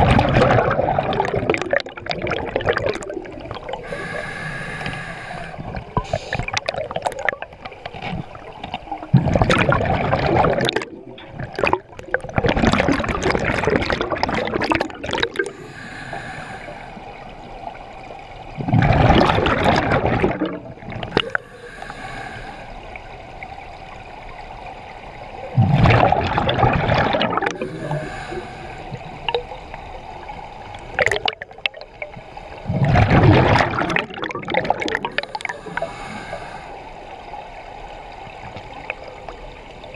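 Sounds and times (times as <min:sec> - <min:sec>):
exhaled bubbles underwater: 0:00.0 - 0:39.9
regulator inhalation hiss: 0:03.8 - 0:06.5, 0:15.5 - 0:17.0, 0:21.3 - 0:22.8, 0:27.6 - 0:29.2, 0:35.2 - 0:36.9.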